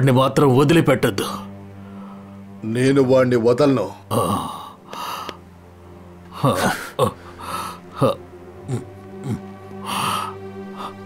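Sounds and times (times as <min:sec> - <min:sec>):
man breathing laboriously: 0:01.5 - 0:02.6, 0:04.4 - 0:05.5, 0:06.3 - 0:08.2, 0:08.8 - 0:11.0
film score drone: 0:04.0 - 0:11.0
man groaning: 0:04.1 - 0:04.8, 0:06.3 - 0:11.0
man gasping: 0:09.3 - 0:11.0.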